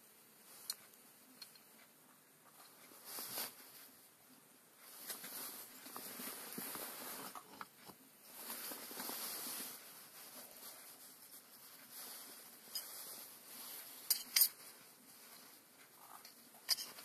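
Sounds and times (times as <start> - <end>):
hands rustling and scraping metal parts: 4.8 - 17.0.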